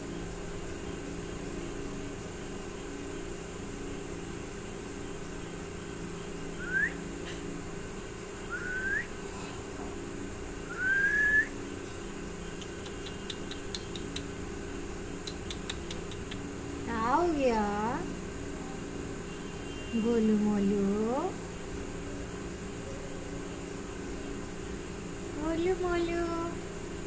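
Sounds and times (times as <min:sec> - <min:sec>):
steady low hum: 0:00.0 - 0:27.0
person whistling: 0:06.6 - 0:07.0, 0:08.5 - 0:09.1, 0:10.7 - 0:11.5
quick sharp clicks: 0:12.6 - 0:14.3, 0:15.2 - 0:16.5.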